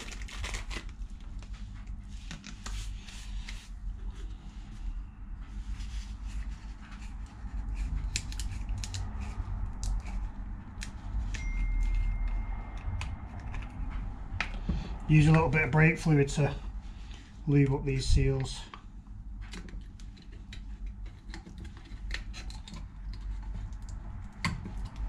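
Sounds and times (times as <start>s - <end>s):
steady low hum: 0.0s - 25.0s
thin steady tone: 11.3s - 13.0s.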